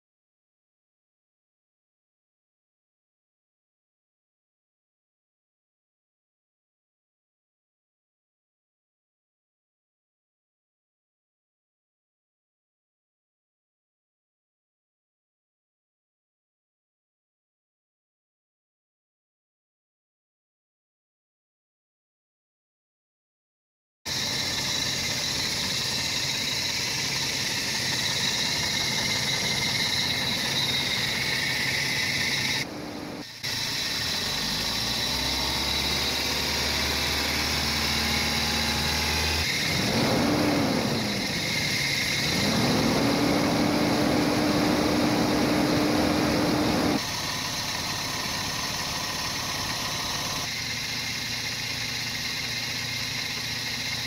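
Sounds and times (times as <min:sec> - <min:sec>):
car engine revving: 0:24.1 - 0:50.5
car engine idling: 0:24.1 - 0:54.0.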